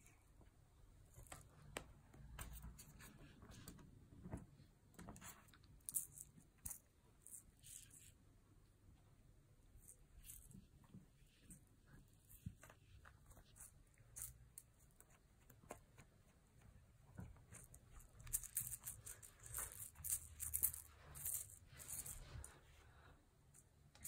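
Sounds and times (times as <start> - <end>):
crinkly rustling and scratching: 9.8 - 24.0.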